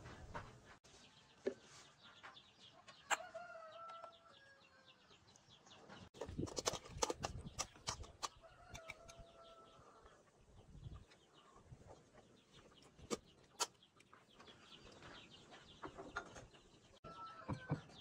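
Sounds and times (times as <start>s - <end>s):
utensils clinking on containers: 6.2s - 9.1s.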